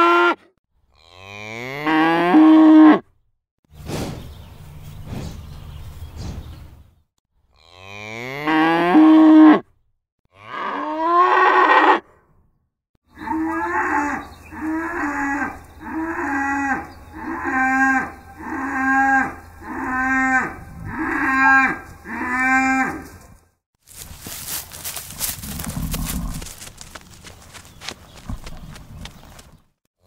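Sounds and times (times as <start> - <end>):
cow mooing: 0.0 - 3.1, 7.5 - 9.7, 10.3 - 12.1, 13.1 - 23.2.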